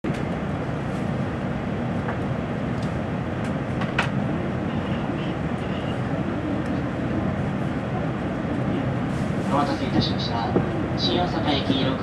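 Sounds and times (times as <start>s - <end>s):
train car hum and rumble: 0.0s - 12.0s.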